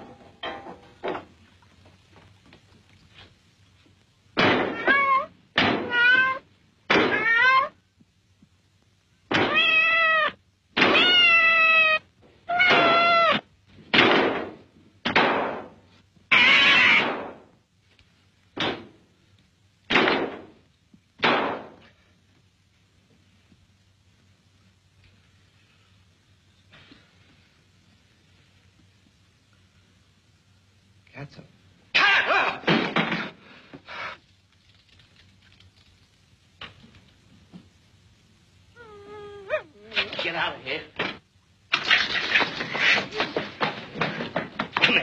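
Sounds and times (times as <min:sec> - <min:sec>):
cat meowing: 0:04.6 - 0:07.8, 0:09.4 - 0:13.5, 0:16.3 - 0:17.1.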